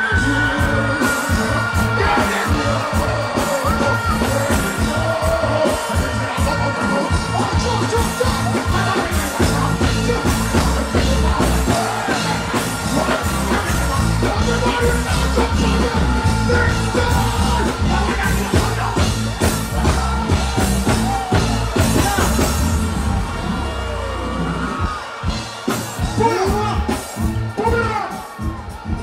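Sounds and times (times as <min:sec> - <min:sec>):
deejay chanting on microphone: 0:00.0 - 0:23.0, 0:25.8 - 0:29.0
loud dancehall music: 0:00.0 - 0:29.0
shouts from stage: 0:00.0 - 0:29.0.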